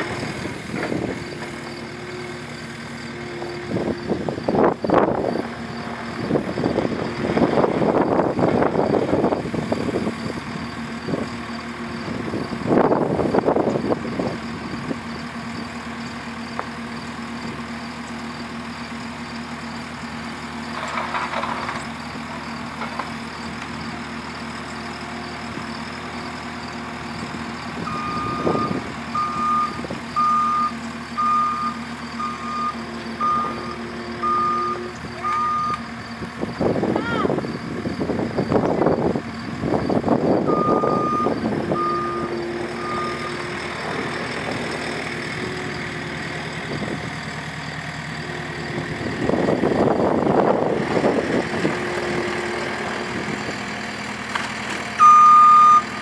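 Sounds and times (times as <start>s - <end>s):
diesel engine running: 0.0s - 56.0s
reverse alarm beeping: 27.9s - 35.8s, 40.4s - 43.5s, 55.0s - 55.9s.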